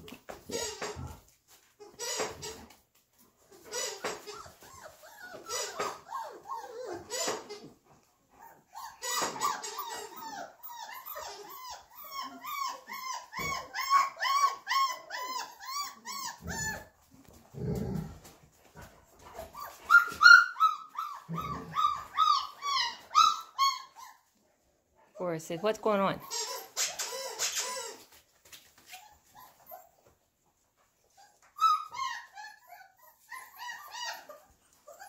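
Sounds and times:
puppy yipping: 3.7s - 7.7s, 8.4s - 16.9s, 19.4s - 24.3s, 26.2s - 28.2s, 31.1s - 35.0s.

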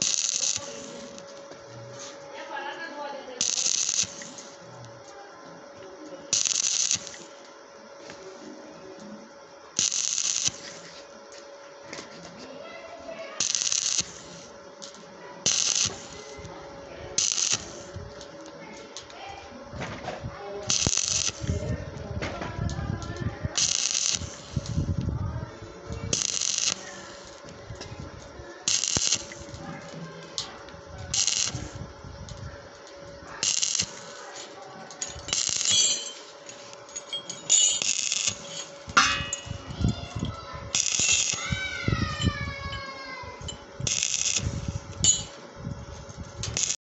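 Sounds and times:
steady hum: 0.0s - 46.8s
welding arc crackling hiss: 0.0s - 46.8s
weld spitting and ticking: 3.4s - 5.0s, 13.4s - 16.4s, 23.6s - 25.1s, 26.1s - 29.6s, 30.4s - 41.6s, 43.5s - 45.3s.

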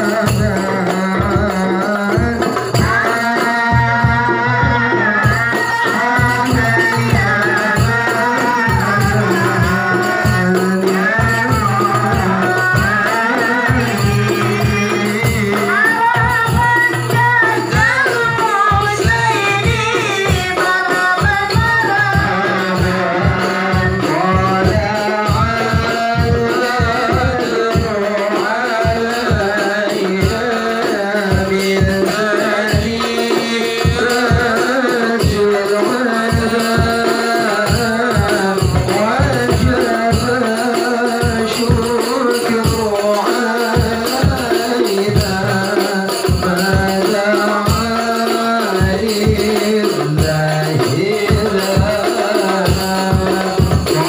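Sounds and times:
hand drums beating: 0.0s - 54.0s
voices singing together: 0.0s - 54.0s.

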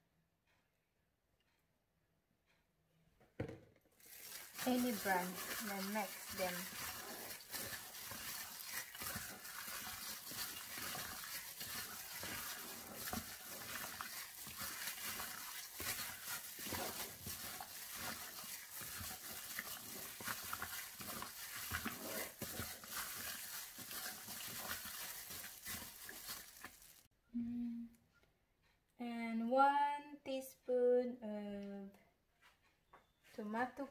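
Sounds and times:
chicken squelching in marinade: 4.0s - 27.1s
plastic glove crinkling: 4.0s - 27.1s.

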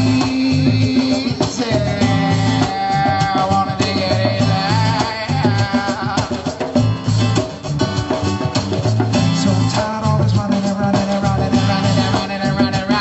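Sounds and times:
bass line: 0.0s - 6.2s, 6.8s - 13.0s
person singing: 0.0s - 6.8s, 9.4s - 13.0s
drums: 0.0s - 13.0s.

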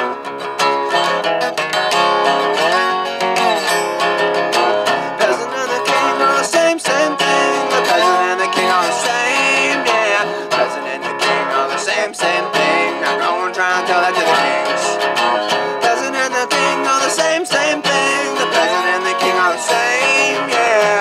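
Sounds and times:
resonator guitar: 0.0s - 21.0s
man singing: 4.5s - 21.0s.

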